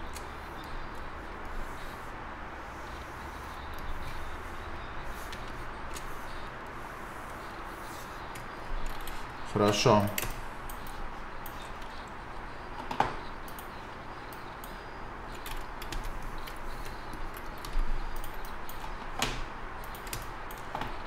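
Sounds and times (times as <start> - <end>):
steady low hum: 0.0 - 21.0
computer clicks: 8.2 - 21.0.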